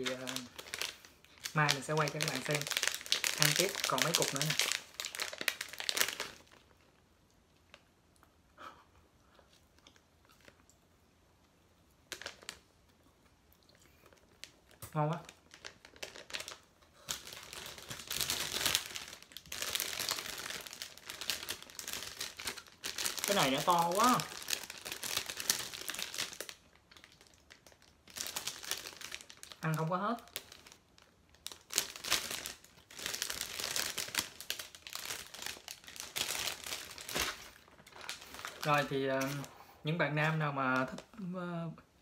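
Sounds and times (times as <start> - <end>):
plastic wrapper crinkling: 0.0 - 7.9, 12.1 - 12.7, 13.8 - 39.6, 40.2 - 41.2.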